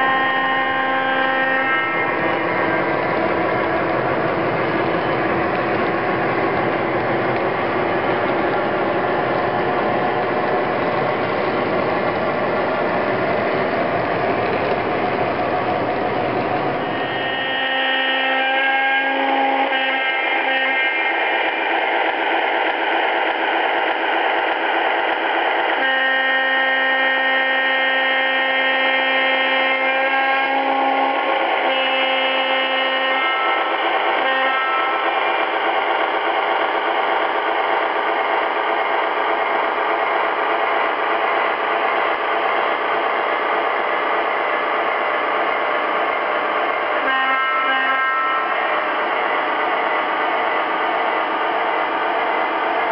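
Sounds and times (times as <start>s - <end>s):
model locomotive horn: 0.0s - 2.8s, 16.8s - 21.3s, 25.8s - 35.1s, 47.0s - 48.8s
model train running on track: 0.0s - 52.9s.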